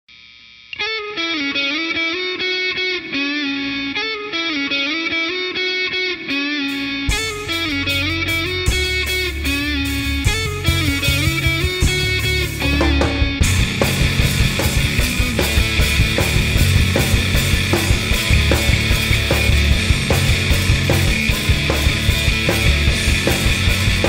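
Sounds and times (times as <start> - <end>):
distorted electric guitar riff: 0.1 - 24.0
drums: 6.6 - 24.0
bass guitar: 6.7 - 24.0.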